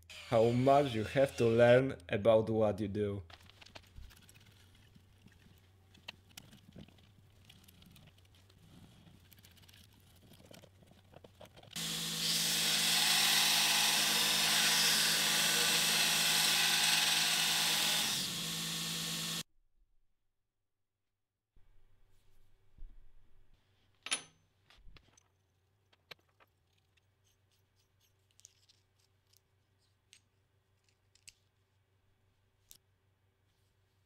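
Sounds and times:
belt grinder grinding metal: 0.0 - 1.8, 11.8 - 19.5
motor hum: 11.8 - 19.4.

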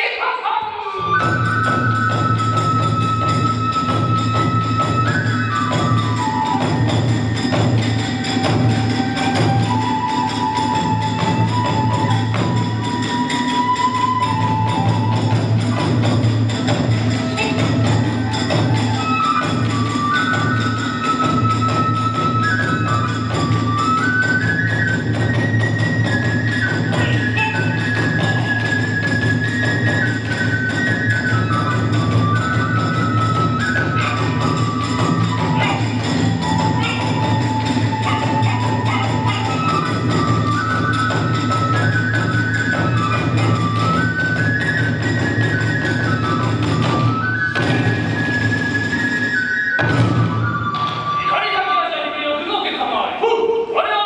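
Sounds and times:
bamboo flute long high notes: 0.5 - 52.4
hand cymbals clashing: 1.7 - 45.5
barrel drum beating fast rhythm: 14.2 - 48.4.

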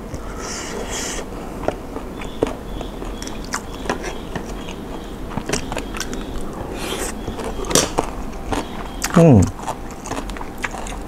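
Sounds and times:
person chewing food: 0.0 - 11.0
mouth clicks and smacks: 5.4 - 11.0.

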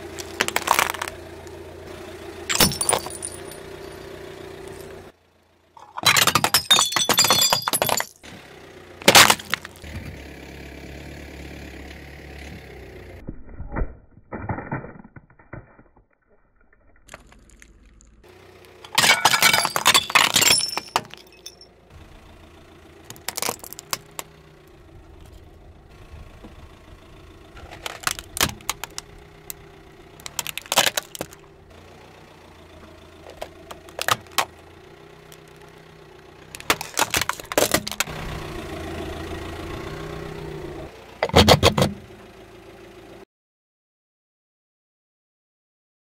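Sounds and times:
plates cracking under car tyre: 0.0 - 1.6, 9.0 - 10.0, 13.2 - 18.2, 23.0 - 24.4, 27.5 - 31.5, 33.2 - 34.7, 36.5 - 38.2
car engine idling: 0.0 - 13.2, 17.1 - 43.2
cracks and snaps: 0.2 - 1.2.

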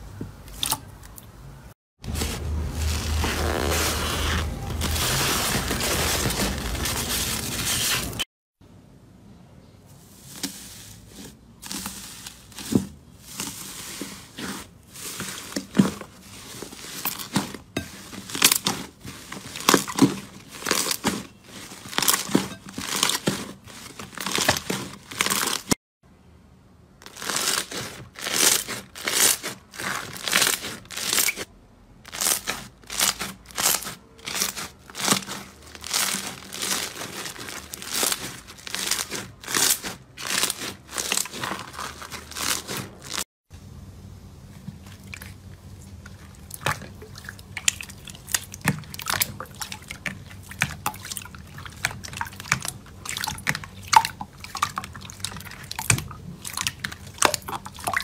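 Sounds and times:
aluminium foil crinkling: 2.1 - 8.2, 11.6 - 25.8, 27.0 - 31.5, 32.1 - 43.2
slime kneading crackling: 2.1 - 8.2, 27.0 - 31.5, 32.1 - 43.2
slime squeezed crunching: 2.1 - 8.2, 27.0 - 31.4, 32.1 - 43.2, 44.6 - 58.0.

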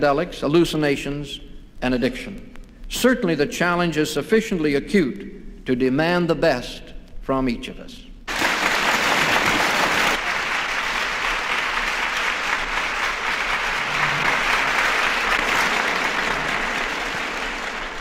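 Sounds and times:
large audience applauding: 8.3 - 18.0.

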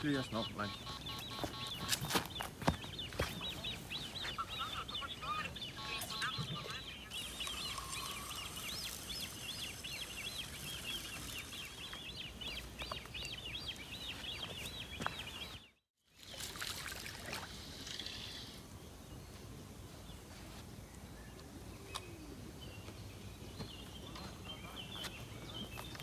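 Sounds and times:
small bird chirping rapidly: 0.0 - 15.8
faint outdoor background: 0.0 - 26.0.

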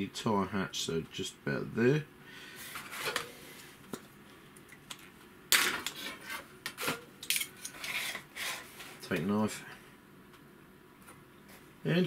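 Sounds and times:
plastic card sliding and rubbing: 7.8 - 9.0.

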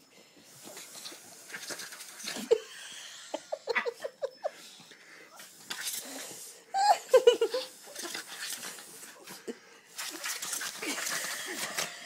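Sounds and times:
person laughing: 2.4 - 4.6, 6.7 - 7.8.

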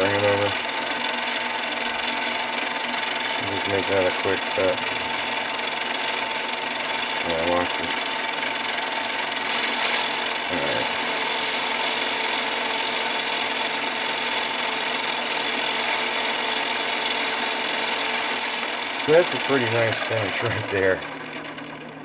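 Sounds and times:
lathe running: 0.0 - 22.0
high-pitched cutting whine: 9.4 - 21.1.

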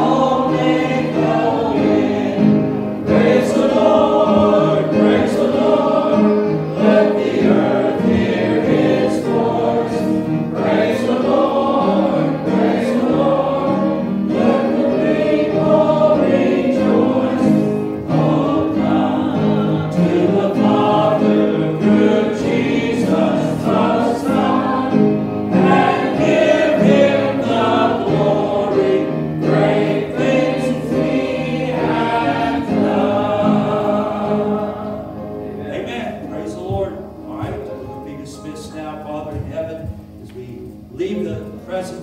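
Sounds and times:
congregation singing a hymn: 0.0 - 42.0.

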